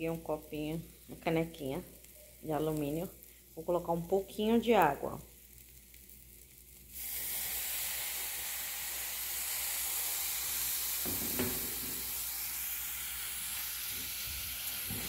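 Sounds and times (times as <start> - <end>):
water sizzling in hot pot: 0.0 - 15.0
knock from stirring: 11.0 - 12.0.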